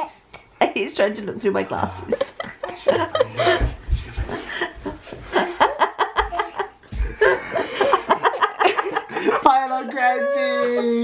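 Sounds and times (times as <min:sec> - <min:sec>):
woman laughing: 0:02.0 - 0:09.3
baby laughing: 0:06.1 - 0:06.8.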